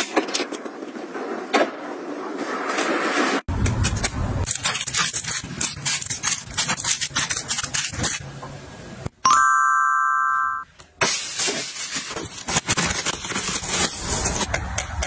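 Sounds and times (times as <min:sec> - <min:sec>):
steady high tone: 0:09.3 - 0:10.7.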